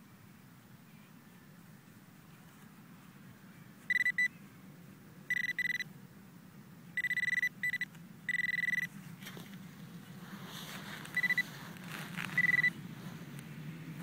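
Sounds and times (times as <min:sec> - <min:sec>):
metal detector probe beeping: 0:03.9 - 0:04.4, 0:05.3 - 0:05.9, 0:07.0 - 0:08.9, 0:11.1 - 0:11.5, 0:12.2 - 0:12.8.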